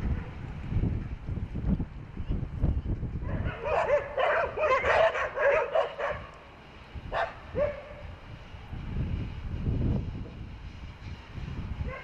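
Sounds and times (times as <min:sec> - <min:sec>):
dog barking rapidly: 0:03.3 - 0:06.3, 0:07.1 - 0:08.0.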